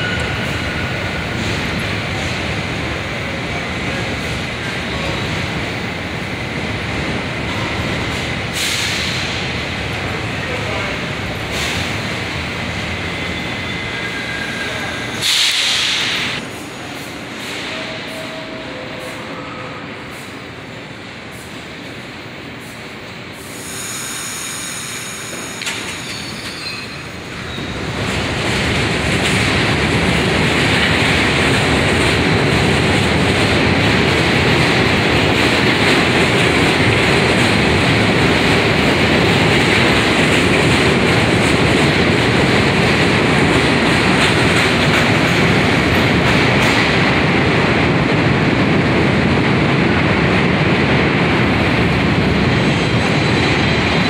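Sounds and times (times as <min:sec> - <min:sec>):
train wheels squealing on rails: 0:00.0 - 0:02.4, 0:04.2 - 0:05.6, 0:12.8 - 0:20.4, 0:23.4 - 0:28.2, 0:52.5 - 0:54.0.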